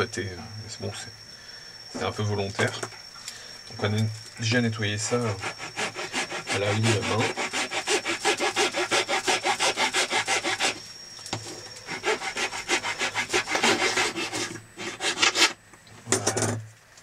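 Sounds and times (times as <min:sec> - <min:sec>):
hand file rasping on epoxy: 0:05.0 - 0:10.8, 0:11.9 - 0:15.6.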